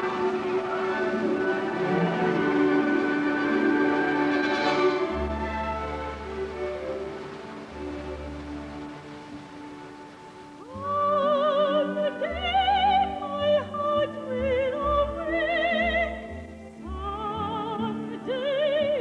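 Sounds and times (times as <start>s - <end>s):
instrumental accompaniment: 0.0s - 12.1s
woman singing opera: 0.0s - 19.0s.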